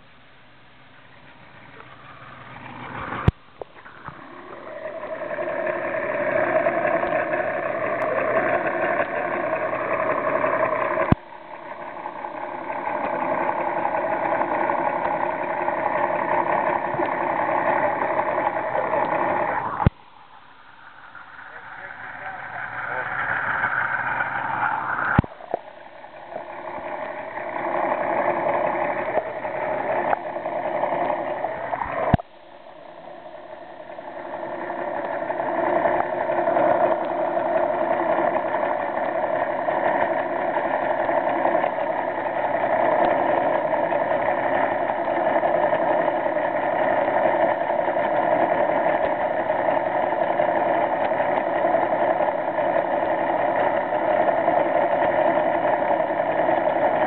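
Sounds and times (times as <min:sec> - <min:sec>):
boat engine hum underwater: 0:00.0 - 0:57.0.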